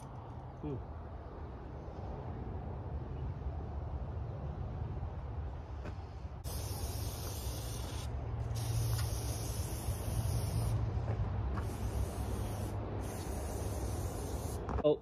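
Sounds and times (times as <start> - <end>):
hissing spray bursts: 6.4 - 10.9, 11.5 - 14.7.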